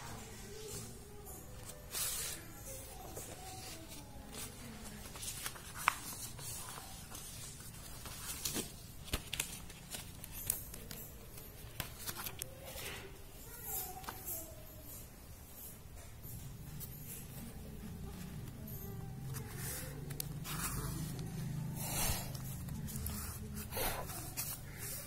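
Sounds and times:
paper rustling and scraping: 0:01.5 - 0:13.2, 0:18.0 - 0:25.0.

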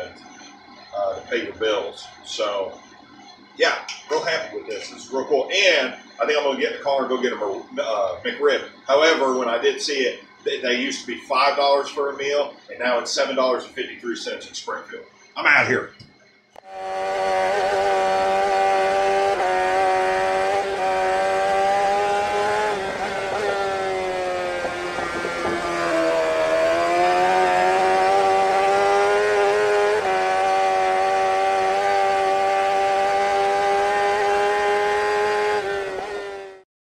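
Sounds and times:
engine at high revs: 0:16.6 - 0:36.6.

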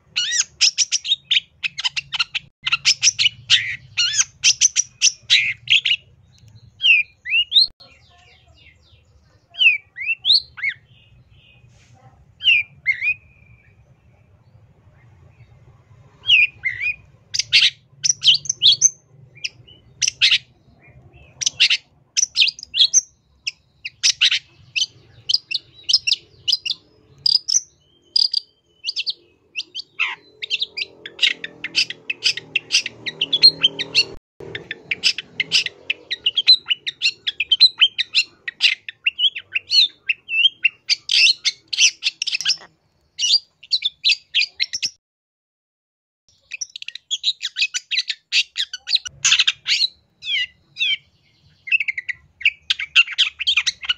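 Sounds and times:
bird singing fast chatter: 0:00.0 - 0:11.7, 0:15.3 - 0:45.0.

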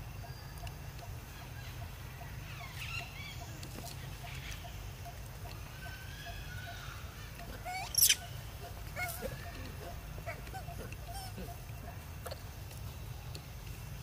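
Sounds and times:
monkeys chirping and calling: 0:05.7 - 0:11.6
monkey shrill squeal: 0:07.6 - 0:08.3.

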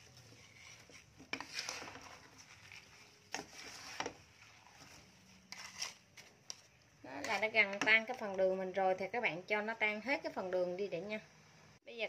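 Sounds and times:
wooden spatula scraping wok: 0:00.0 - 0:08.4.

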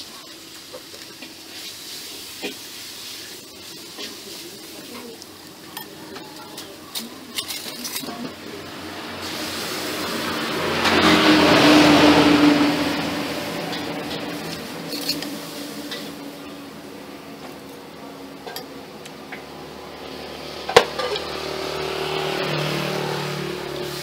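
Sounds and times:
spoons clinking on ceramic bowl: 0:06.9 - 0:08.2, 0:14.4 - 0:15.4.

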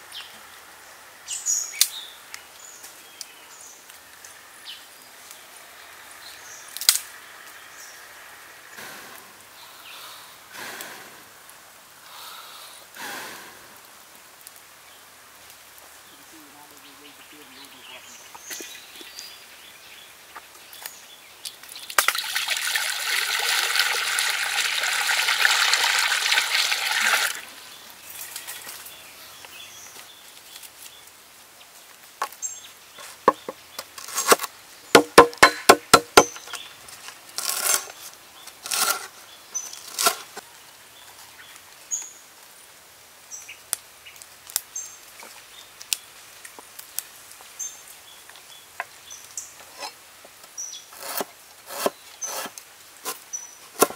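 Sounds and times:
hot wok hissing: 0:08.6 - 0:13.9
knife chopping on wooden board: 0:35.0 - 0:36.4.

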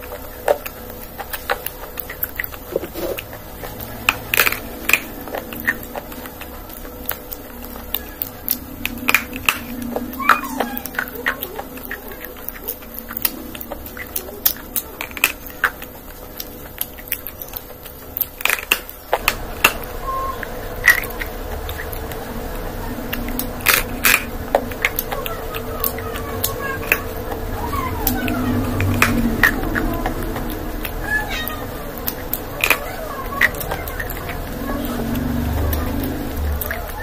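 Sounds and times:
crunchy bites and chewing: 0:00.0 - 0:27.6.

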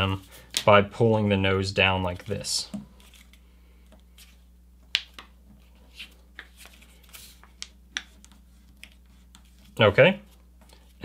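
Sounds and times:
paper rustling: 0:05.9 - 0:11.0.

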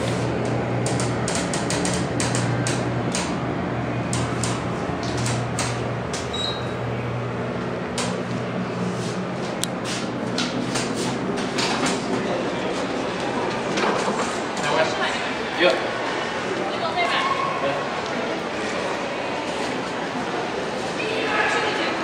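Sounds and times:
elevator hum: 0:00.0 - 0:22.0
elevator doors clicking and knocking: 0:00.3 - 0:06.5.

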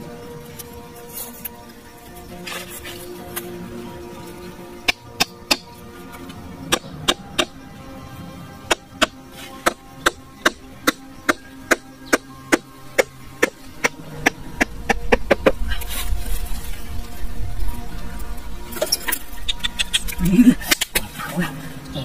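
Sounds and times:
background music: 0:00.0 - 0:22.0.

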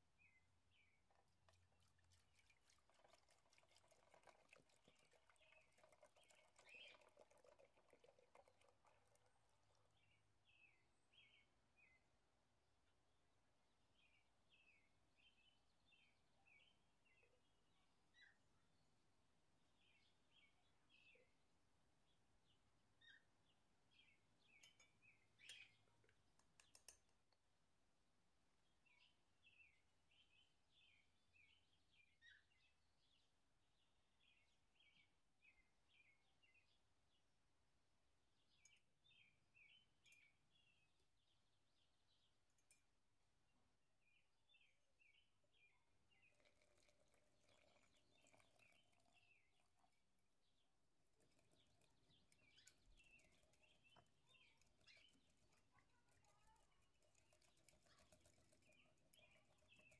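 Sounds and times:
small bird chirping: 0:00.2 - 0:12.0, 0:23.0 - 0:23.3, 0:23.9 - 0:27.3, 0:44.1 - 0:59.9
faint high chirps: 0:51.2 - 0:59.9.

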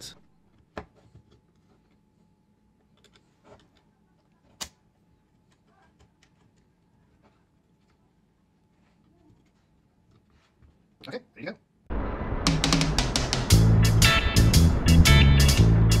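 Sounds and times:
plastic parts clicking and tapping: 0:02.8 - 0:04.8, 0:05.5 - 0:06.8.

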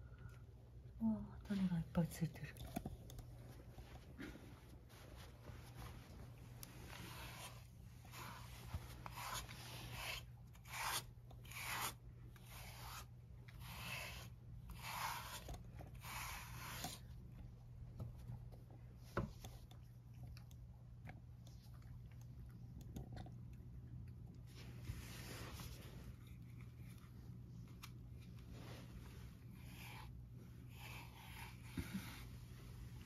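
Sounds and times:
brush strokes through cat fur: 0:03.4 - 0:17.1, 0:24.4 - 0:33.0.

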